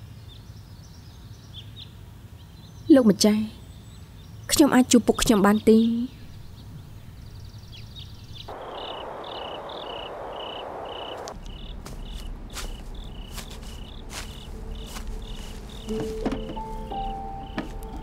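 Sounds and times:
crickets chirping: 0:06.3 - 0:18.0
music: 0:15.9 - 0:18.0.

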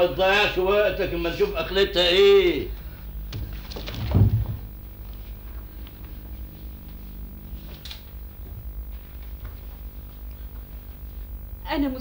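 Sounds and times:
low mains hum and hiss: 0:00.0 - 0:12.0.

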